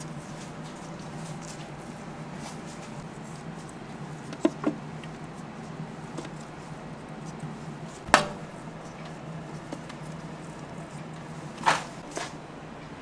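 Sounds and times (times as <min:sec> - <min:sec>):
steady low hum: 0:00.0 - 0:13.0
steel trays knocking: 0:08.1 - 0:08.5.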